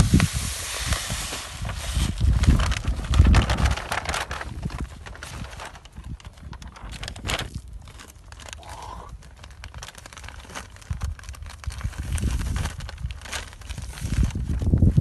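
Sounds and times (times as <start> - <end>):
plastic packets crinkling: 1.6 - 15.0
low rumbling: 1.8 - 7.4.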